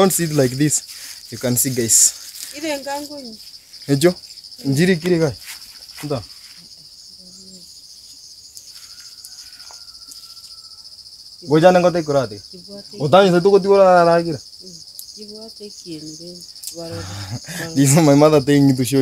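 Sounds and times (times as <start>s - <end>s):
insects chirping: 0.0s - 19.0s
person speaking: 15.8s - 18.2s.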